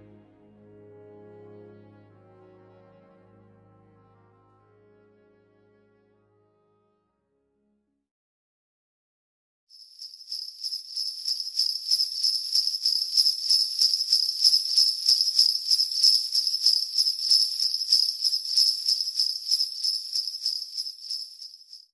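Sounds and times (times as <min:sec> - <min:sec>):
sleigh bells jingling: 0:09.8 - 0:21.9.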